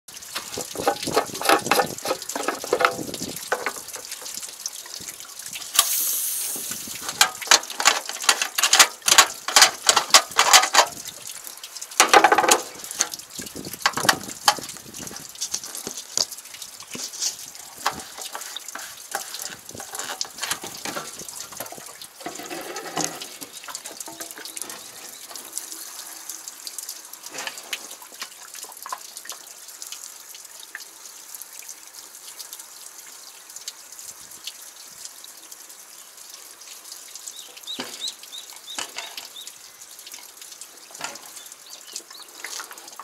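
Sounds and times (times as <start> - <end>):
rushing hiss: 5.7 - 7.5.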